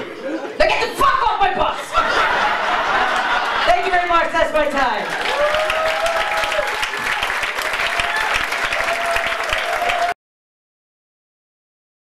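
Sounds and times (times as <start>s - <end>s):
audience applauding: 2.4s - 4.3s, 5.0s - 10.2s.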